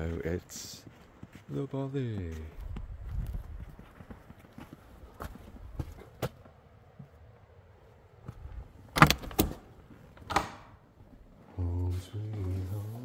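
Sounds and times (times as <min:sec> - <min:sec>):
metal door latch clicking: 0:08.9 - 0:09.6, 0:10.2 - 0:10.8.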